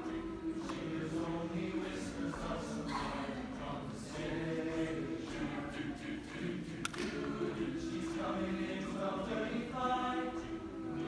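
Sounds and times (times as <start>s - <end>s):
choir singing held chords: 0.0s - 11.0s
sharp click: 6.8s - 7.2s.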